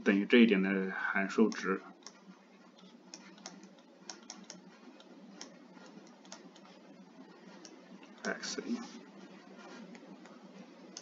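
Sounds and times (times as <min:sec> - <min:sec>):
low steady hiss: 0:00.0 - 0:11.0
stylus tapping on tablet screen: 0:02.0 - 0:06.8.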